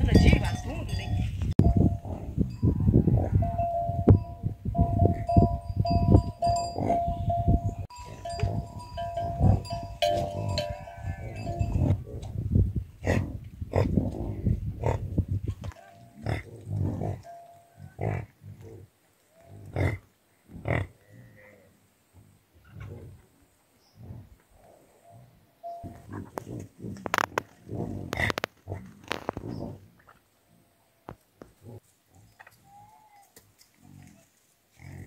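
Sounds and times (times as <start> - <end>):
animal bells clanking: 0.0 - 12.0, 17.1 - 18.0, 25.0 - 26.2.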